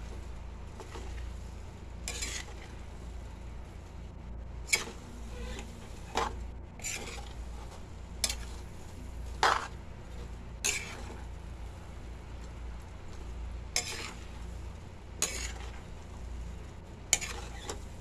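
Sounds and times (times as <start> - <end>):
low steady hum: 0.0 - 18.0
metal spatula scraping pan: 2.0 - 2.8, 4.7 - 8.6, 9.4 - 9.7, 10.6 - 11.2, 13.8 - 14.4, 15.2 - 15.8, 17.1 - 17.8.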